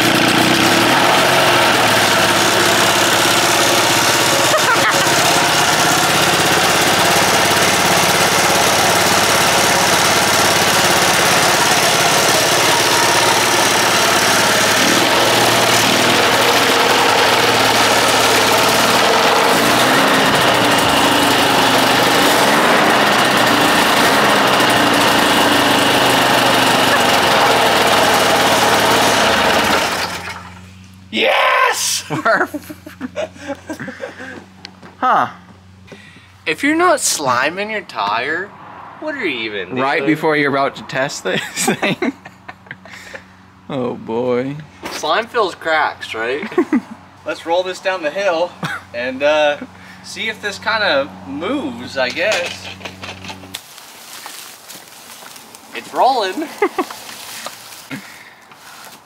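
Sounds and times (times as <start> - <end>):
ultralight airplane engine running: 0.0 - 29.9.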